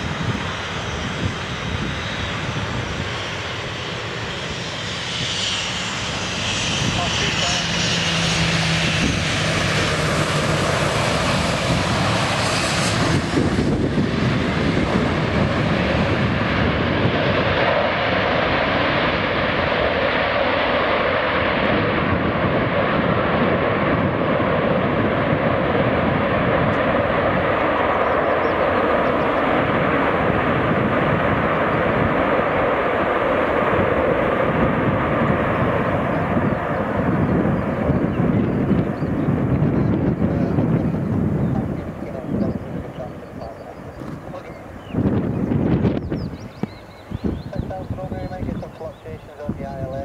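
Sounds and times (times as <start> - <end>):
jet engines rushing: 0.0 - 50.0.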